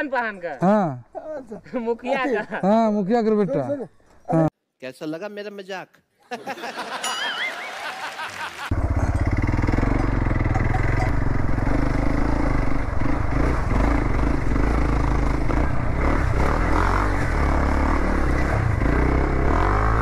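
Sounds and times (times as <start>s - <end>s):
motorcycle engine running: 8.7s - 20.0s.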